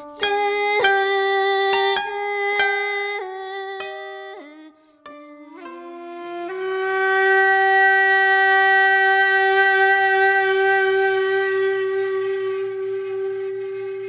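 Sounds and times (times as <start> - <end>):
bamboo flute long note: 5.5 - 14.0.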